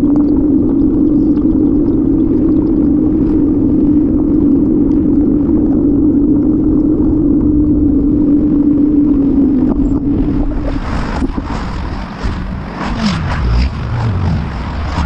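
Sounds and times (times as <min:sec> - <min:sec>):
bicycle rolling hum: 0:00.0 - 0:15.0
wind noise: 0:00.0 - 0:15.0
car traffic passing: 0:11.9 - 0:15.0.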